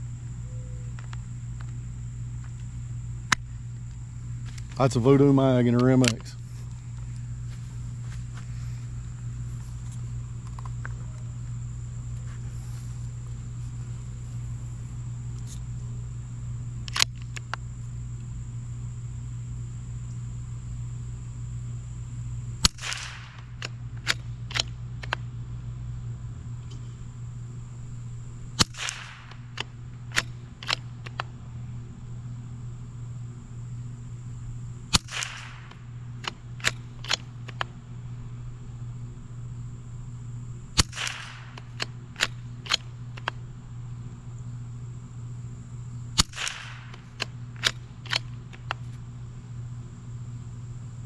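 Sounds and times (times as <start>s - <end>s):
rifle shots: 22.6s - 24.7s, 28.6s - 31.2s, 34.9s - 37.7s, 40.8s - 43.3s, 46.2s - 48.3s.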